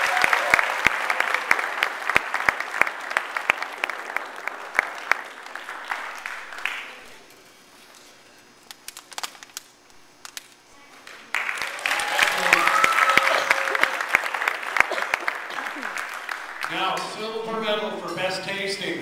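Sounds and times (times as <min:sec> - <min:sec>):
loud sharp claps nearby: 0:00.0 - 0:07.2, 0:11.0 - 0:17.3
audience applauding: 0:00.0 - 0:07.3, 0:11.0 - 0:18.2.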